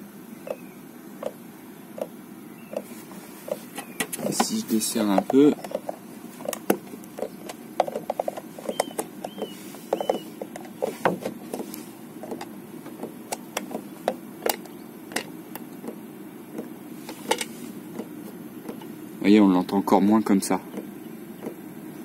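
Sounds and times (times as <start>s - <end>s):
heater blower fan hum: 0.0s - 22.0s.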